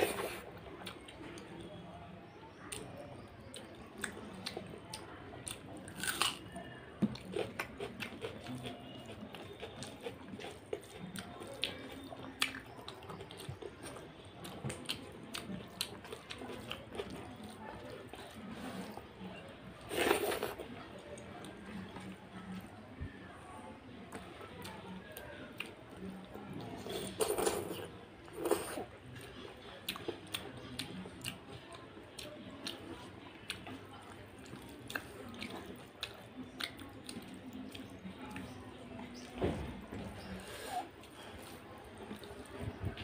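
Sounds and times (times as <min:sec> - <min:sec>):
person chewing wetly: 0:03.5 - 0:19.0, 0:26.8 - 0:31.4, 0:32.2 - 0:38.5.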